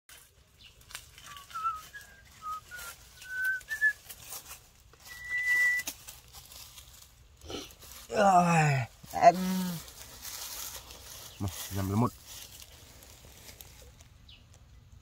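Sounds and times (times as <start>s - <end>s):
person whistling: 1.3s - 4.0s, 5.0s - 5.9s.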